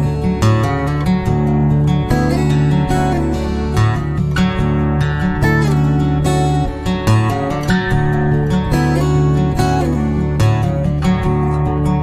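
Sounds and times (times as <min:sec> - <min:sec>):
instrumental background music: 0:00.0 - 0:12.0.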